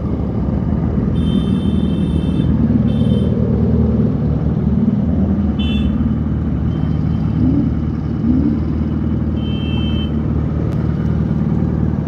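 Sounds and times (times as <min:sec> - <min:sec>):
vehicle horn toot: 0:01.2 - 0:03.3, 0:05.6 - 0:06.0, 0:09.4 - 0:10.2.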